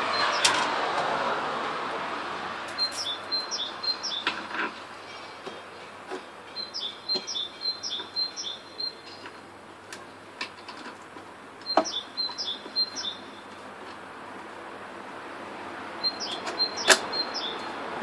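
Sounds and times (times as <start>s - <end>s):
songbird singing: 0.0s - 0.5s, 2.7s - 14.7s, 15.8s - 18.0s.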